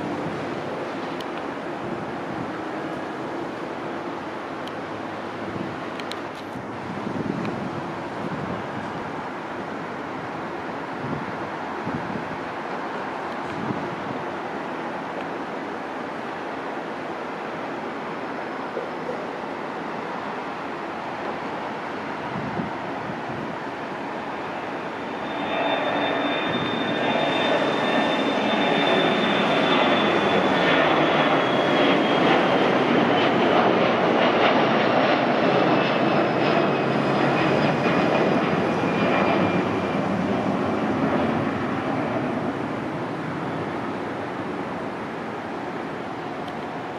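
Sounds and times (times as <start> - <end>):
high jet engine whine: 0.0 - 46.9
jet engine crackling rumble: 21.3 - 46.9.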